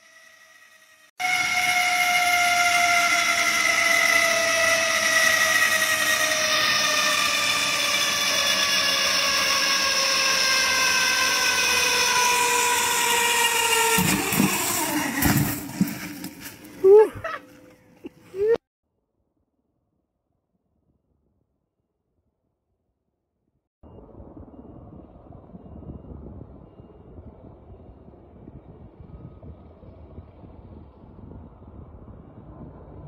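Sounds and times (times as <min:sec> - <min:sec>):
zip-line trolley hissing on cable: 0:00.0 - 0:16.9.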